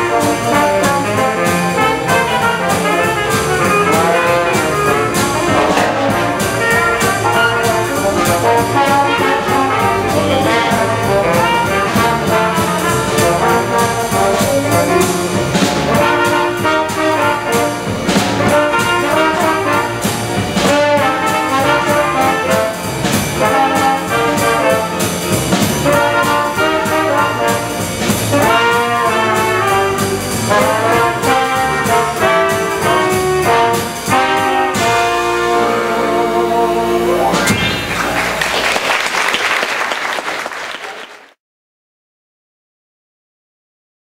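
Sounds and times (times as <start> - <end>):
saxophone: 0.0 - 38.4
trombone: 0.0 - 38.9
trumpet: 0.0 - 38.9
piano: 0.0 - 40.9
drums: 0.0 - 41.0.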